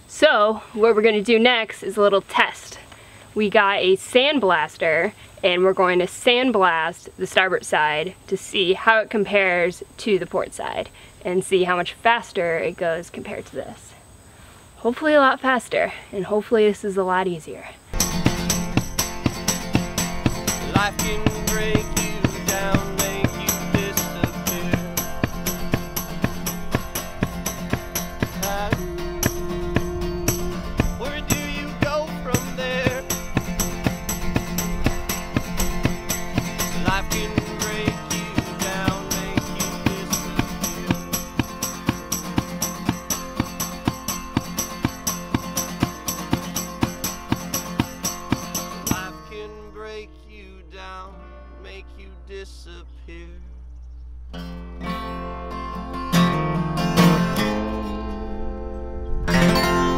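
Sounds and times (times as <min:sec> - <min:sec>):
song with singing over a beat: 0:18.0 - 0:34.5, 0:35.3 - 0:43.0.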